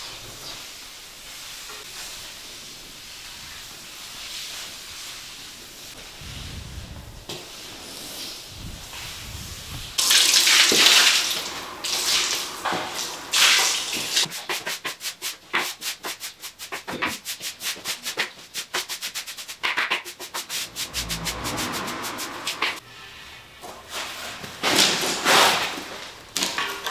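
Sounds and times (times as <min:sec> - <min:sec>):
tool scraping concrete floor: 0:19.5 - 0:26.7.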